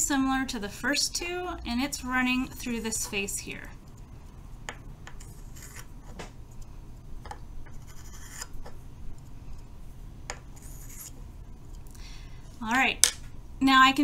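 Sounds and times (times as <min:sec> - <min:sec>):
chalk scratching on plastic: 0:05.2 - 0:05.9, 0:07.7 - 0:08.5, 0:10.6 - 0:11.2.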